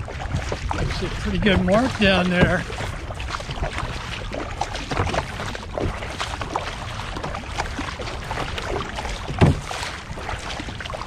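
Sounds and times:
wind noise: 0:00.0 - 0:04.3
kayak paddle splashing: 0:00.0 - 0:11.0
water noise: 0:00.0 - 0:11.0.

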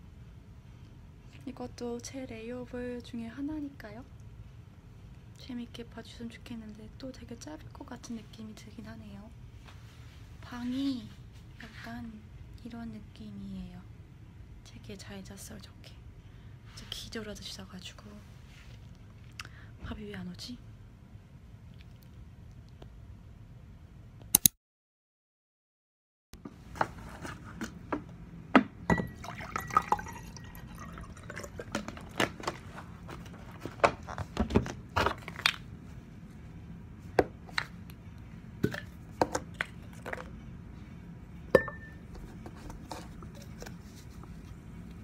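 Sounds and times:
water pouring into a glass: 0:29.0 - 0:32.2.

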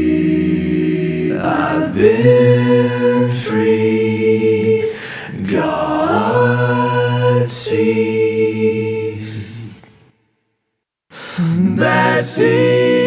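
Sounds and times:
man singing close harmony a cappella: 0:11.3 - 0:13.0.

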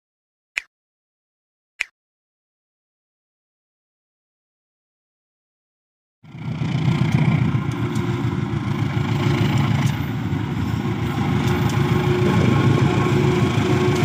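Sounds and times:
locomotive engine rumble: 0:06.3 - 0:14.0.

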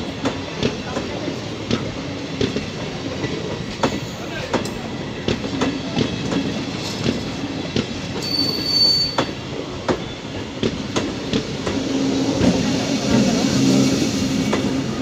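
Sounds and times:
train wheels clacking over rail joints: 0:00.2 - 0:13.3
high wheel squeal: 0:08.2 - 0:09.4.

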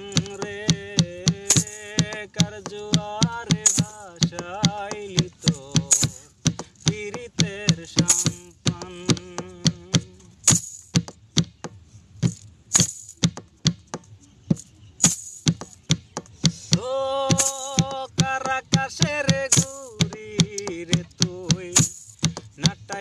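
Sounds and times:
plastic jerrycan drum beat: 0:00.0 - 0:23.0.

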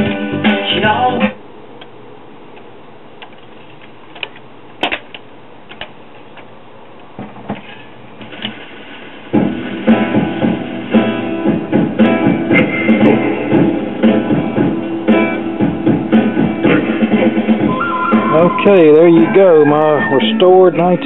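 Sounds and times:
guitar-led record playing: 0:00.0 - 0:01.4, 0:08.7 - 0:21.0.

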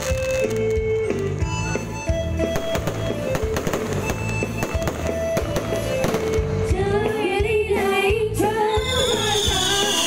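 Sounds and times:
fireworks bangs and crackles: 0:00.0 - 0:01.6, 0:02.2 - 0:07.3
music playing: 0:00.0 - 0:10.0.

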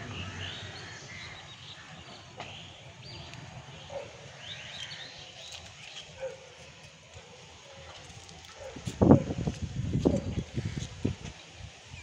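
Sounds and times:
small birds chirping: 0:00.0 - 0:07.0.

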